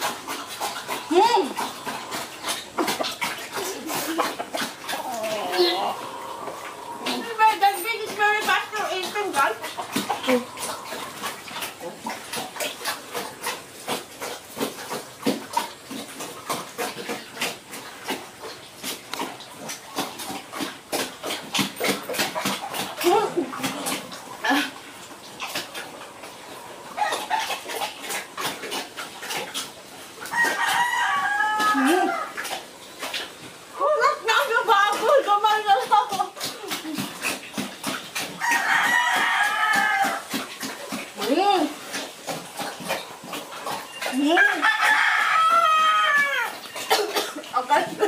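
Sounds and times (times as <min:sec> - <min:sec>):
pig eating wet feed: 0:00.0 - 0:48.0
rooster crowing: 0:30.3 - 0:32.4, 0:38.4 - 0:40.3, 0:44.4 - 0:46.6.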